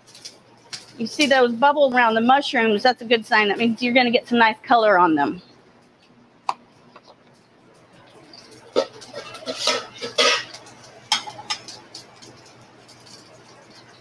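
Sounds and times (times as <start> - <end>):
metal tongs clinking on skillet: 0.1 - 1.4, 8.1 - 14.0.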